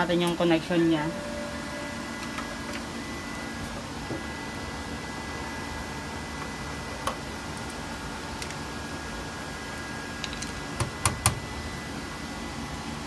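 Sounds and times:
electrical hum with high whine: 0.0s - 13.0s.

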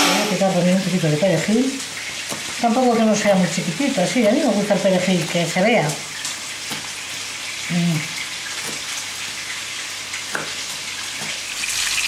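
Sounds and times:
knife chopping on wooden board: 10.3s - 11.4s.

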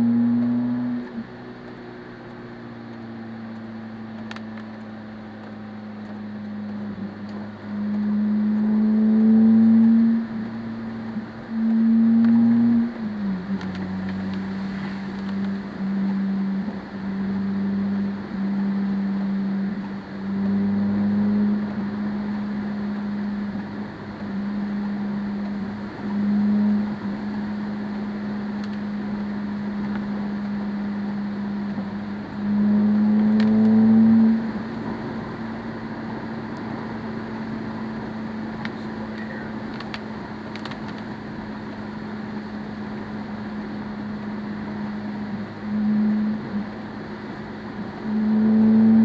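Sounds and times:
low hum: 0.0s - 49.0s
tyres hissing on wet road: 14.3s - 15.3s.

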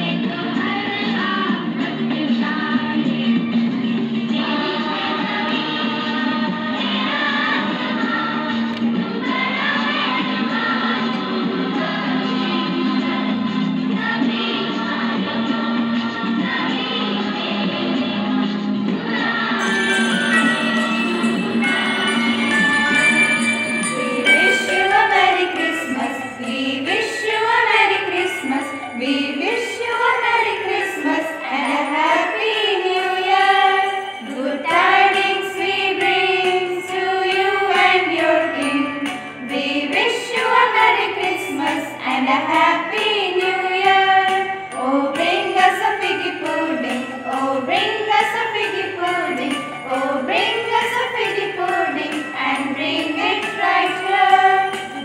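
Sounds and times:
person singing over music: 0.0s - 55.0s
jingling bells: 19.6s - 55.0s.

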